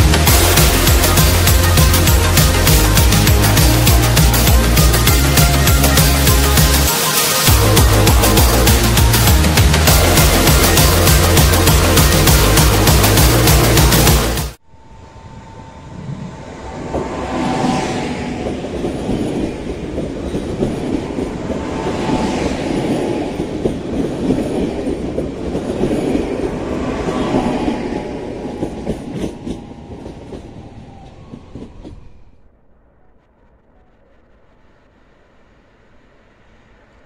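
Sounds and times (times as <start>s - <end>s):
train wheels rumbling on rails: 0.0s - 14.6s, 15.2s - 37.0s
faint hum: 14.6s - 18.7s.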